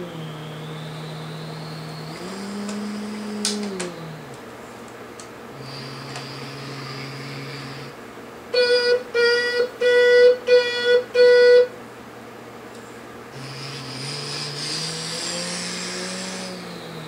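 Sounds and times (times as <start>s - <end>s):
low electronic hum: 0.0s - 17.0s
buzzy electronic horn honks: 8.5s - 11.7s.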